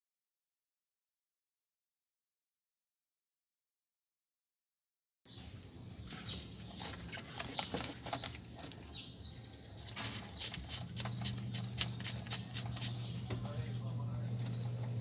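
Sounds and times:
birds chirping: 0:05.3 - 0:15.0.

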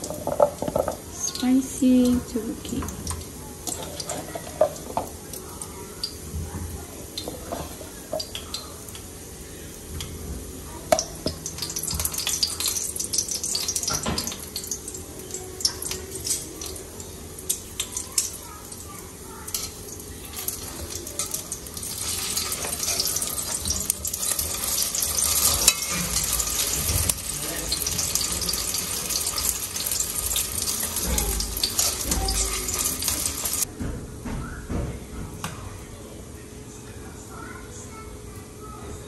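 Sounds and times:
rice cakes sizzling in a pan: 0:00.0 - 0:33.7
spatula clicking and scraping pan: 0:03.0 - 0:05.2, 0:19.4 - 0:33.7.

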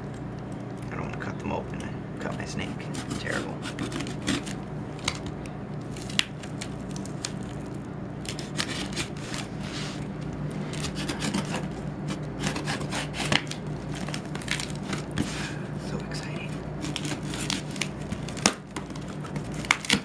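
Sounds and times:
steady low hum: 0:00.0 - 0:20.0
knife slitting packing tape: 0:02.9 - 0:04.6, 0:08.2 - 0:10.0, 0:10.7 - 0:15.4, 0:16.5 - 0:20.0.

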